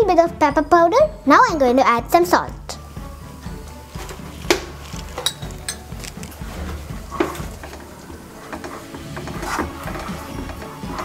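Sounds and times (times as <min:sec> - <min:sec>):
spatula scraping a pan: 0:03.9 - 0:11.0.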